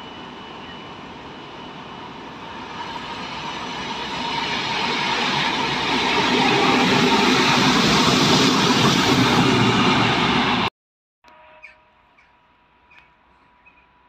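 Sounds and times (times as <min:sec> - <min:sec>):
diesel locomotive approaching: 0:00.0 - 0:10.7.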